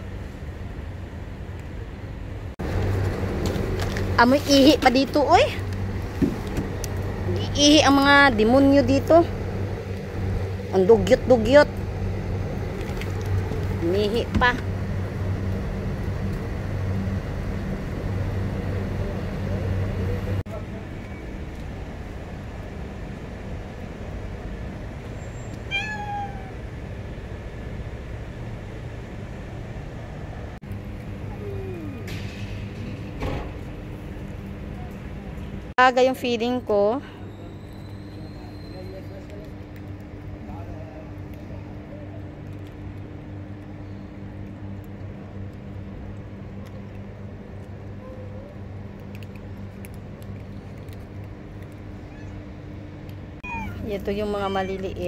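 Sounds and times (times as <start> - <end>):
machinery humming: 0.0 - 25.3
low background rumble: 0.0 - 36.8
cat meowing: 25.7 - 26.6, 52.0 - 52.4, 53.4 - 55.0.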